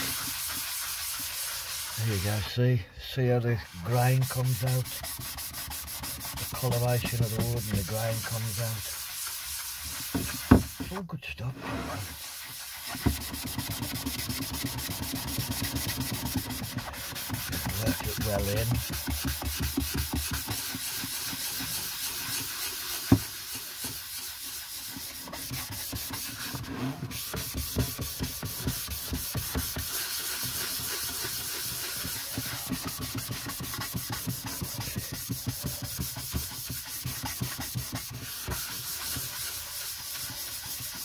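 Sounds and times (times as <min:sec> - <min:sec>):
sponge rubbing on wooden board: 0:00.0 - 0:41.0.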